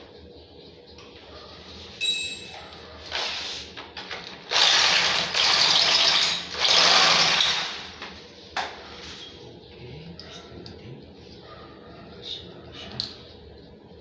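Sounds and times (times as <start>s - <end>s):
short ringing clink: 2.0s - 2.6s
electric drill boring into tile: 4.5s - 7.9s.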